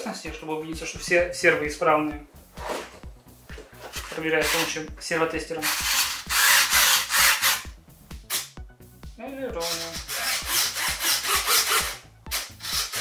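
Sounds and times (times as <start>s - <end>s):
servos whirring back and forth: 5.6s - 7.6s, 9.6s - 13.0s.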